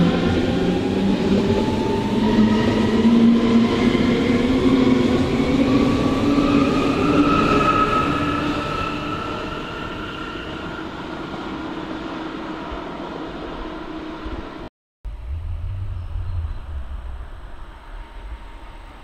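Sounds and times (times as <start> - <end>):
low rumble: 15.0 - 19.0.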